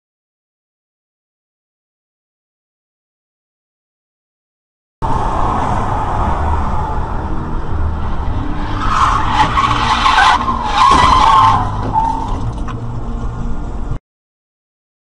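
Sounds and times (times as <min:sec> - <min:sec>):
car tyres skidding and squealing: 0:05.0 - 0:12.8
road and engine noise: 0:05.0 - 0:14.0.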